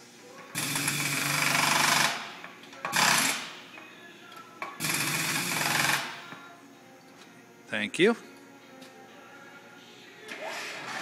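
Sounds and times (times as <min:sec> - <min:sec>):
air impact wrench hammering: 0:00.6 - 0:03.6, 0:04.6 - 0:06.4.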